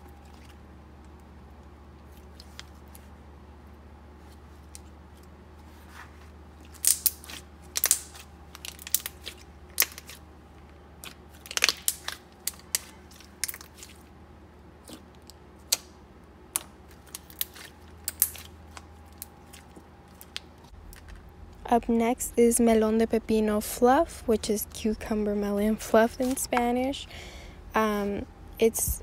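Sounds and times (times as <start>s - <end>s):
faint low hum: 0.0s - 29.0s
slime popping and crackling: 6.6s - 10.2s, 11.0s - 14.0s, 14.8s - 21.3s.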